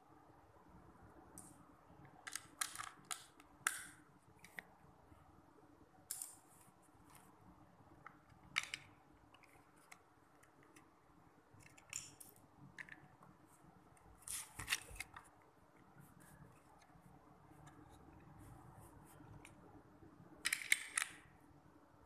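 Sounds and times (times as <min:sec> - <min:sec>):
plastic bricks clicking: 0:20.4 - 0:21.3.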